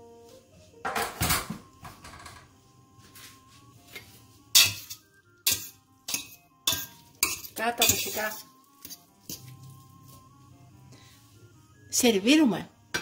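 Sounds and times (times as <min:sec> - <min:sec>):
metal utensil clattering in pot: 0:04.5 - 0:09.4.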